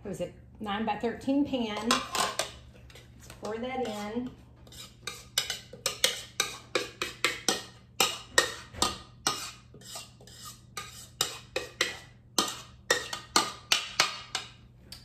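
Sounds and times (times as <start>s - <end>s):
spatula scraping a mixing bowl: 1.8s - 14.5s.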